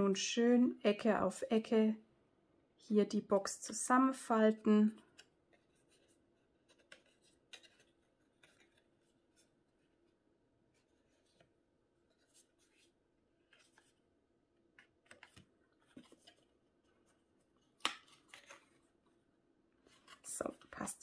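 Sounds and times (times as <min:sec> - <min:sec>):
cardstock rustling and tapping: 0:05.0 - 0:09.6, 0:14.6 - 0:18.8.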